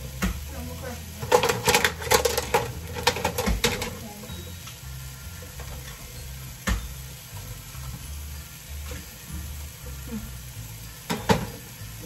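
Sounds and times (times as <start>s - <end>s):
kitchenware clicking and knocking: 1.2s - 4.0s, 5.6s - 8.0s, 11.0s - 11.7s.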